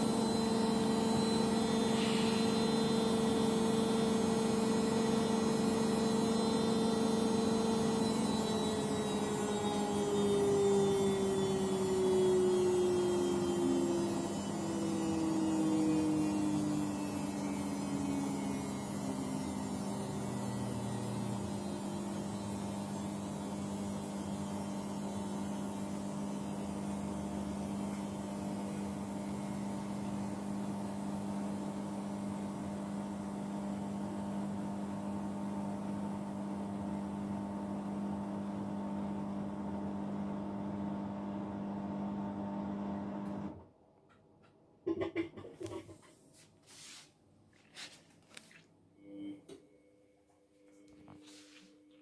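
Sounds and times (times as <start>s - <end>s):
washing machine motor winding down: 0.0s - 43.7s.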